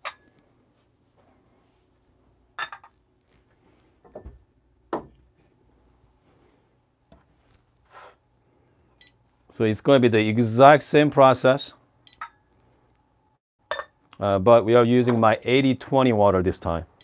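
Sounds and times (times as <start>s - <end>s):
glassware clinking: 0.0s - 0.3s, 2.6s - 3.0s, 13.7s - 14.0s.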